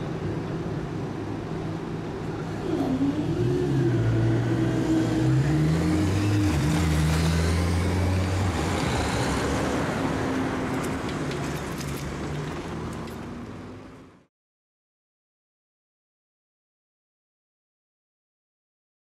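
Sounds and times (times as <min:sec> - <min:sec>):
road traffic: 0:00.0 - 0:14.3
motorcycle accelerating: 0:02.6 - 0:11.6.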